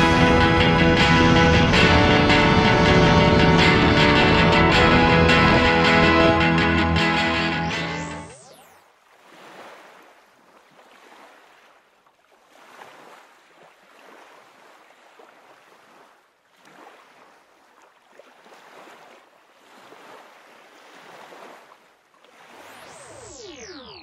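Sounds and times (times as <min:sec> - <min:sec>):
faint waves washing: 0:09.0 - 0:23.9.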